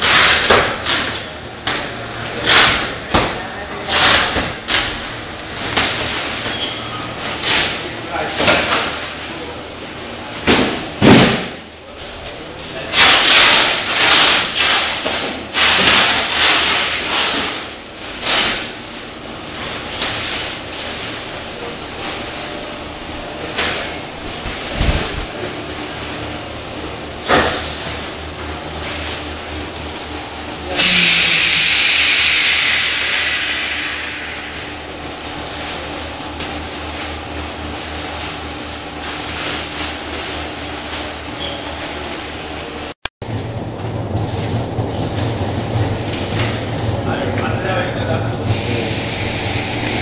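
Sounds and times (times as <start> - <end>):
low machinery hum: 0.0 - 50.0
loud hiss of rushing air: 30.8 - 35.2, 48.4 - 50.0.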